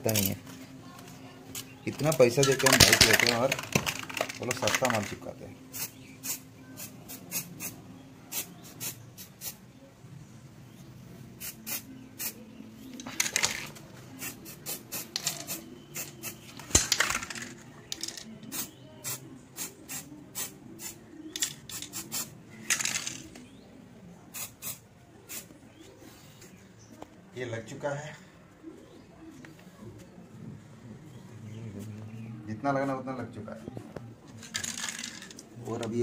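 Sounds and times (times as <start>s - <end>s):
spray paint hissing: 5.7s - 9.6s, 11.3s - 23.2s, 24.3s - 25.5s.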